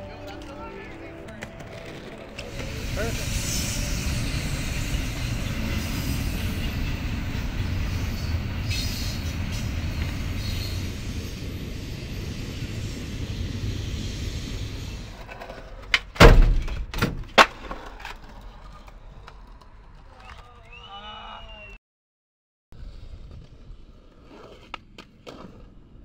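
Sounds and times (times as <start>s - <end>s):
freight train rumbling past: 0.0s - 15.8s
skateboard clacks and landings: 15.2s - 20.4s.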